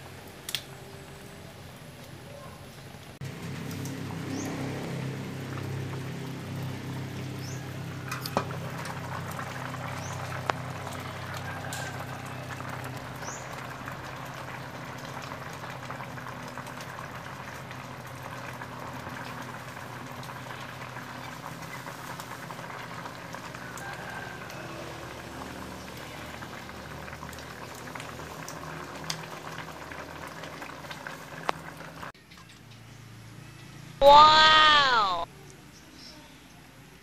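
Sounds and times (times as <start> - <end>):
liquid bubbling at a boil: 0.0 - 32.2.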